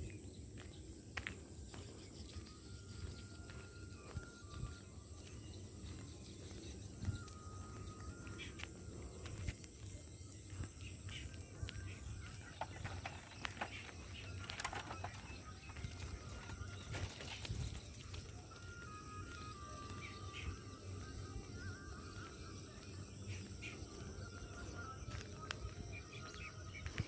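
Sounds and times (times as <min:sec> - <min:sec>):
insect drone: 0:00.0 - 0:27.0.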